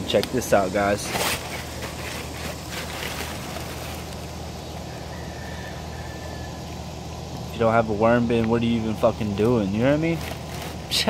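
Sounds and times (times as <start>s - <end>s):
low background rumble: 0.0s - 11.0s
hand rustling through straw: 0.4s - 4.6s.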